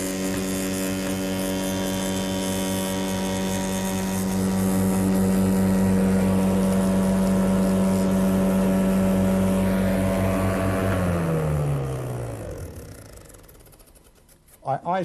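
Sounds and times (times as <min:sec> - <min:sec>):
spindle moulder whining: 0:00.0 - 0:14.3.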